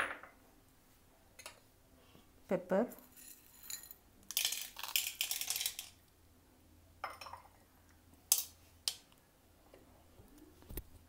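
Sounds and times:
peppercorns pattering into bowl: 3.0s - 6.0s.

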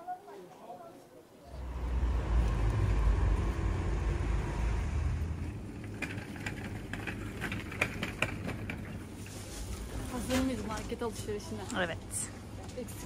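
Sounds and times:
vehicle passing: 1.5s - 8.2s.

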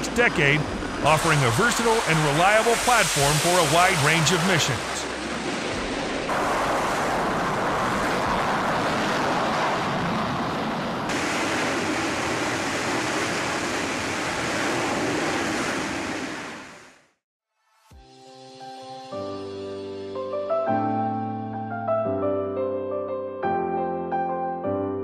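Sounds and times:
jet engines with afterburner: 0.0s - 17.2s.

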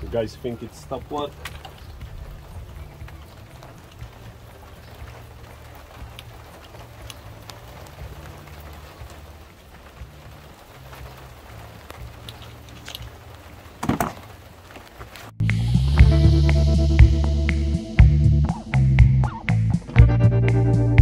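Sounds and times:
coolant dripping and trickling: 0.0s - 15.4s.

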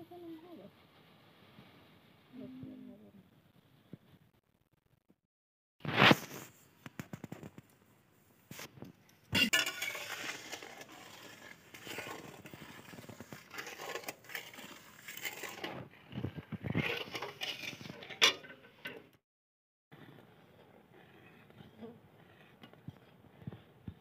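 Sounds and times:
syrup crackling: 9.4s - 18.2s
spatula scraping wok: 9.4s - 19.2s, 19.9s - 24.0s.

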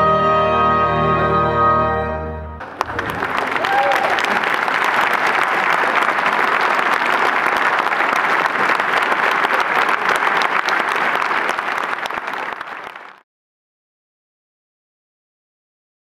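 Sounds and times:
audience applauding: 2.6s - 13.2s.

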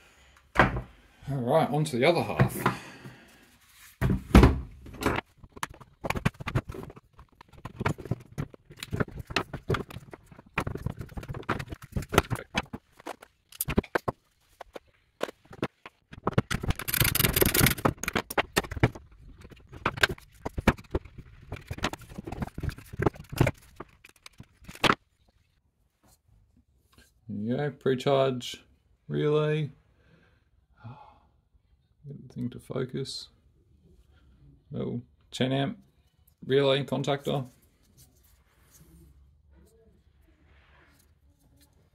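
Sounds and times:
plastic parts clicking and knocking: 4.0s - 25.1s.

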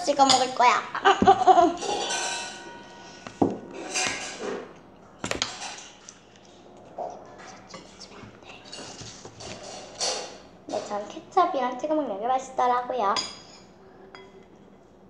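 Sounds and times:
dishes and bottle clattering: 0.2s - 6.2s, 8.7s - 11.0s.

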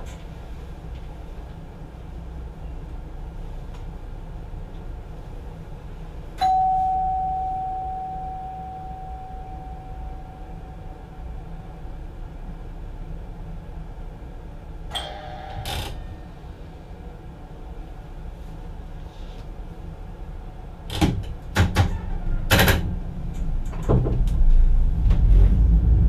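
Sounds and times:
low rumble of train running: 0.0s - 26.0s
bell chime: 6.4s - 11.3s, 15.0s - 15.6s.

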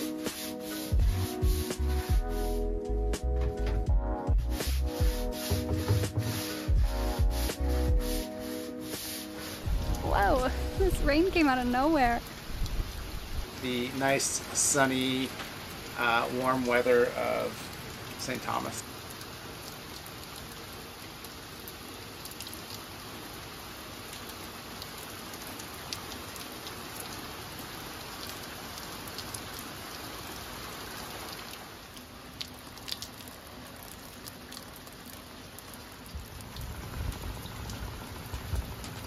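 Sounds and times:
rain on the sea: 0.0s - 39.0s
low rumble: 9.7s - 11.2s.

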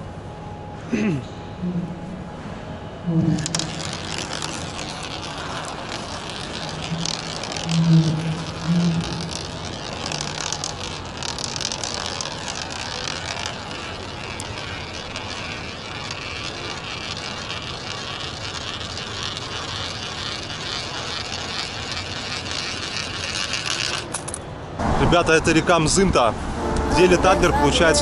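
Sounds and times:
coin rolling in a funnel: 3.3s - 24.4s.

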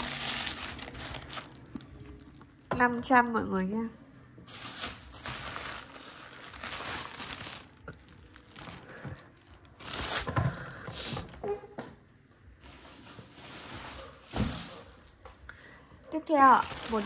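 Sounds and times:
leather shoes rustling and crinkling: 0.0s - 2.8s, 4.5s - 11.4s, 16.4s - 17.0s.

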